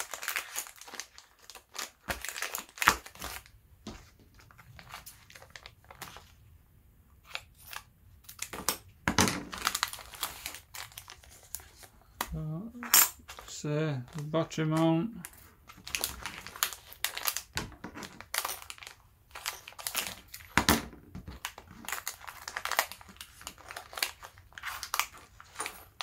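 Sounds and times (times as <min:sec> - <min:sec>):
foil bags crinkling: 0:00.0 - 0:03.5, 0:04.3 - 0:06.4, 0:09.4 - 0:11.9, 0:13.3 - 0:20.6, 0:21.3 - 0:26.0.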